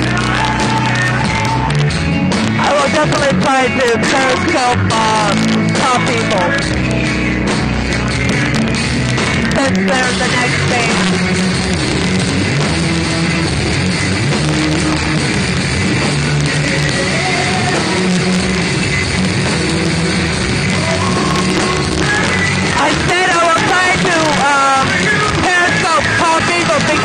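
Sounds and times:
drums: 0.0s - 27.0s
electric guitar: 0.0s - 27.0s.

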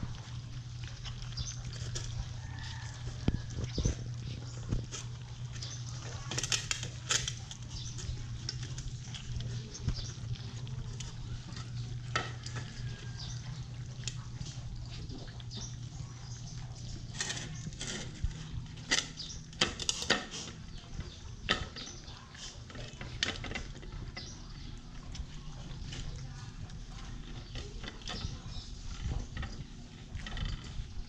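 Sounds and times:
puppies chewing and lapping: 0.0s - 31.0s
steady low hum: 0.0s - 31.0s.

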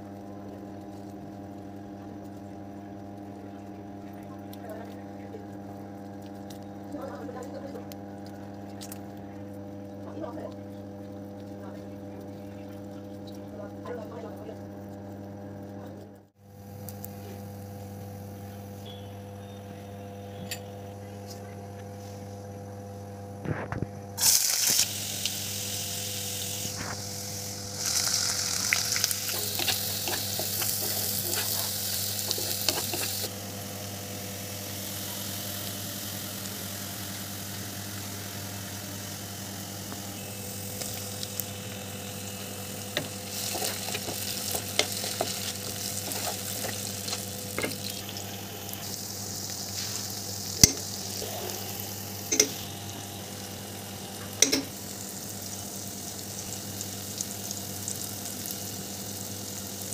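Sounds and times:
garlic and onions sizzling in oil: 0.0s - 20.6s, 24.1s - 59.9s
steady low hum: 0.0s - 59.8s
spoon clicking against pan: 54.4s - 54.7s.

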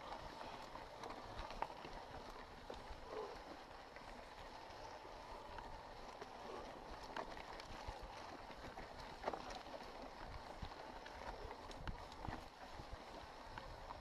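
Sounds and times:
bike tyres on dirt trail: 0.0s - 14.0s
bike clicks and knocks over stones: 4.0s - 14.0s.

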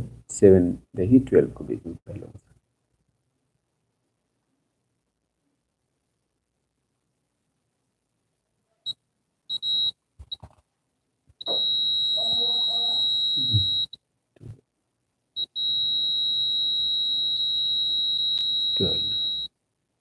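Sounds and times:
multimeter beeping: 9.5s - 10.5s, 11.4s - 14.0s, 15.4s - 19.5s
probe handling noise: 9.5s - 10.7s, 11.3s - 14.0s, 15.4s - 19.5s.

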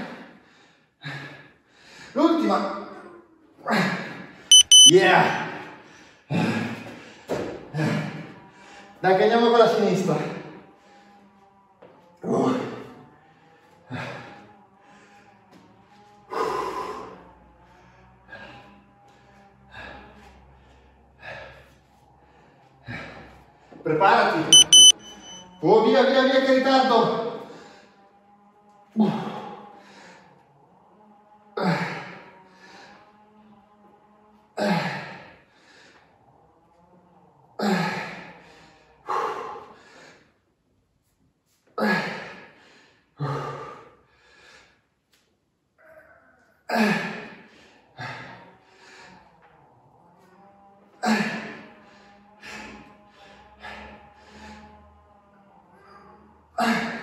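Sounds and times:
person breathing hard: 0.0s - 2.2s, 37.6s - 40.5s, 41.8s - 45.1s, 51.0s - 55.0s.

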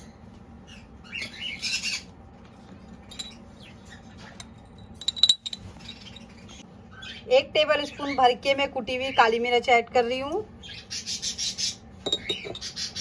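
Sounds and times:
utensil clinking against bowl: 3.0s - 3.4s, 4.2s - 6.3s, 12.0s - 12.8s.

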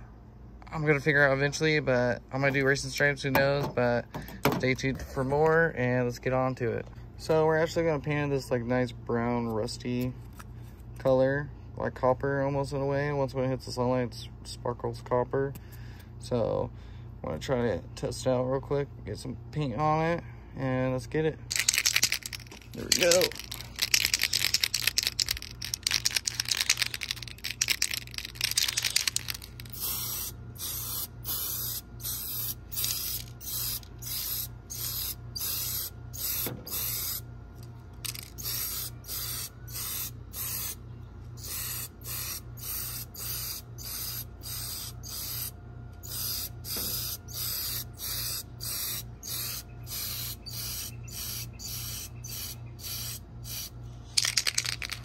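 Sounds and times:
aerosol spray can hissing: 21.5s - 37.2s, 38.1s - 40.8s, 41.4s - 55.0s.

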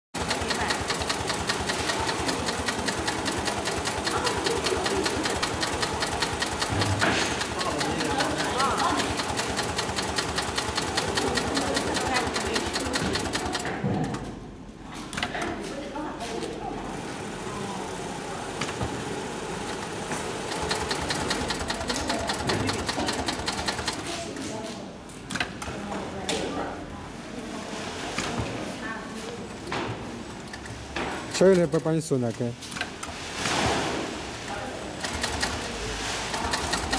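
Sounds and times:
sewing machine needle clattering: 0.2s - 14.4s, 19.6s - 24.2s, 34.9s - 36.9s.

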